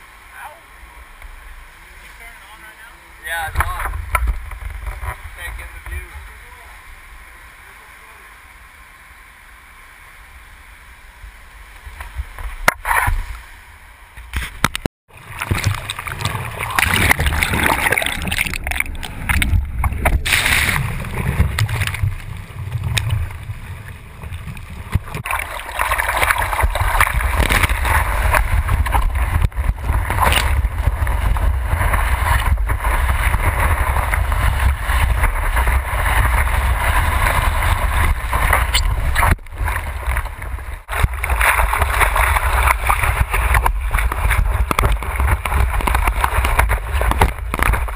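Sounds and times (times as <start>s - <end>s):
surf washing: 0.0s - 14.5s, 15.1s - 47.9s
wind buffeting camera: 3.4s - 6.4s, 11.7s - 47.9s
churning whitewater: 15.1s - 47.9s.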